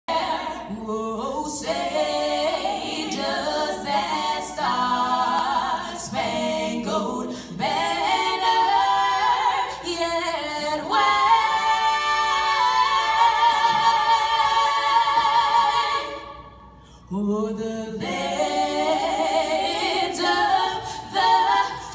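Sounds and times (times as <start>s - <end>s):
woman singing a cappella: 17.1s - 21.9s.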